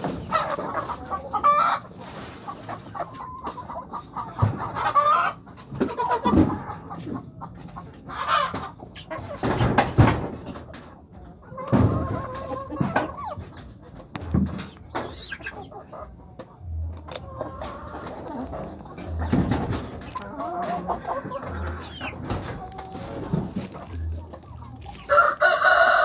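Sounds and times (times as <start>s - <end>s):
hens clucking: 0.0s - 26.0s.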